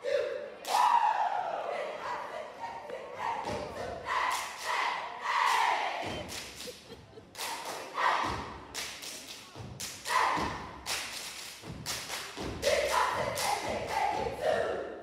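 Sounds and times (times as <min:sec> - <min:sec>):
stomping and clapping: 0:05.4 - 0:14.3.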